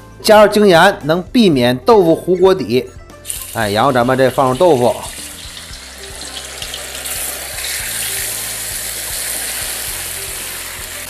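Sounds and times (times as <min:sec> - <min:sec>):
tofu sizzling in hot oil: 0:03.2 - 0:11.0.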